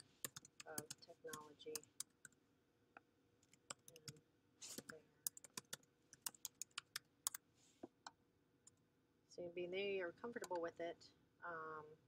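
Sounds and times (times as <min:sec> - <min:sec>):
typing on computer keyboard: 0:00.0 - 0:02.4, 0:03.4 - 0:04.2, 0:04.8 - 0:07.4.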